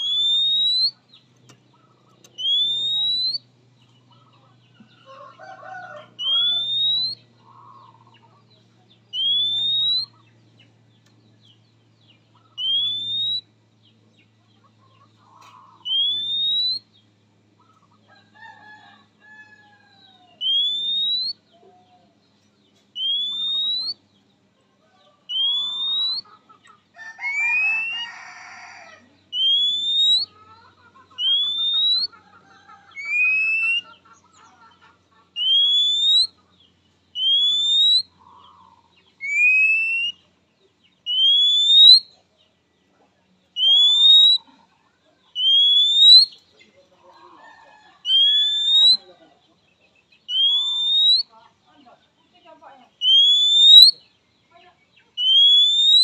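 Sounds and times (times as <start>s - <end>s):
bird rising whistle call: 0.0s - 1.0s, 2.4s - 3.4s, 6.2s - 7.2s, 9.2s - 10.1s, 12.6s - 13.5s, 15.8s - 16.8s, 29.4s - 30.3s, 35.4s - 36.3s, 37.2s - 38.1s, 39.2s - 40.2s, 41.1s - 42.1s, 43.6s - 44.4s, 45.4s - 46.4s, 48.1s - 49.0s, 50.3s - 51.3s, 53.0s - 54.0s, 55.2s - 56.0s
soft bird chirps: 0.0s - 18.3s, 19.3s - 56.0s.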